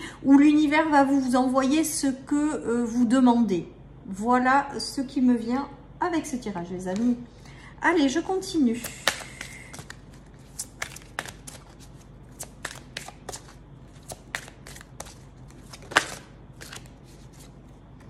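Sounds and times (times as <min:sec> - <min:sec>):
card slap: 0:08.8 - 0:11.7, 0:12.4 - 0:16.9
cards being shuffled: 0:08.8 - 0:18.0.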